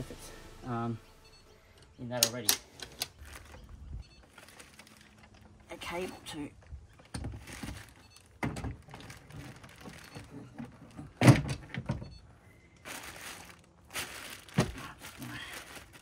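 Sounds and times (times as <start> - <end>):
plastic bag rustling: 2.9 - 6.2, 7.3 - 10.9, 12.8 - 16.0.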